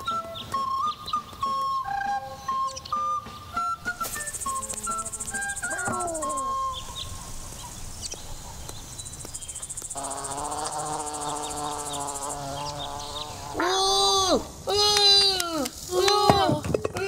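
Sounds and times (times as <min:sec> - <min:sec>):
high pulsing insect chirr: 0:02.3 - 0:15.1
steady buzzing hum: 0:09.4 - 0:14.7.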